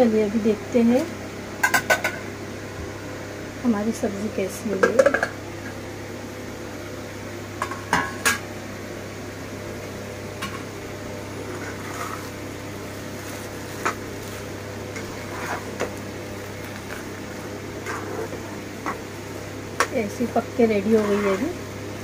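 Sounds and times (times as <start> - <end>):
metal spatula scraping a frying pan: 15.0 - 15.7, 20.9 - 21.5.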